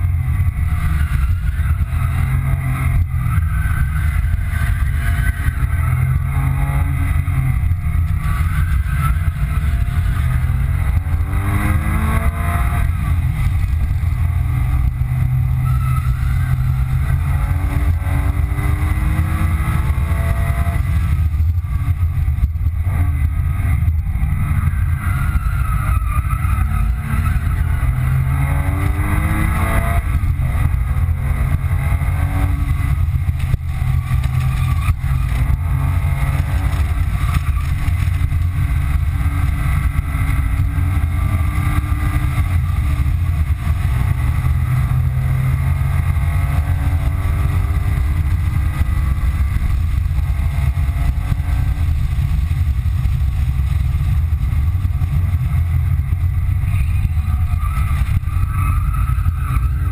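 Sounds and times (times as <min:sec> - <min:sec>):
car engine accelerating hard: 0:00.0 - 0:59.9
low road rumble: 0:00.0 - 0:59.9.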